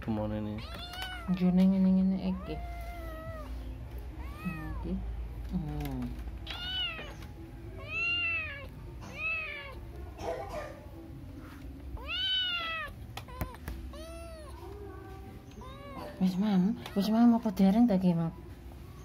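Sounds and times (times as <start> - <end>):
kitten meowing: 0.6 - 1.4, 2.3 - 3.6, 4.2 - 5.0, 6.4 - 7.2, 7.8 - 9.8, 12.0 - 14.6.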